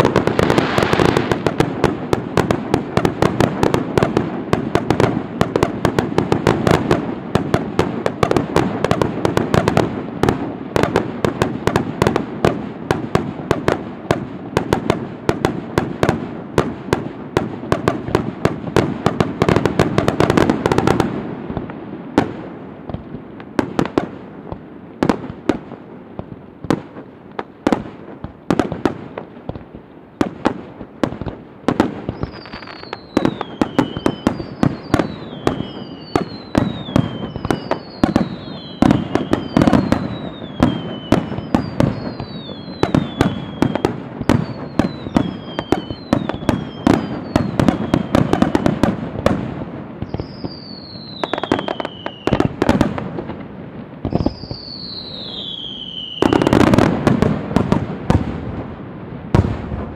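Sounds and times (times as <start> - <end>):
falling firework whistles: 0.0 - 1.6, 31.9 - 49.4, 50.0 - 52.9, 54.0 - 57.7
fireworks booming and cracking: 0.0 - 59.9.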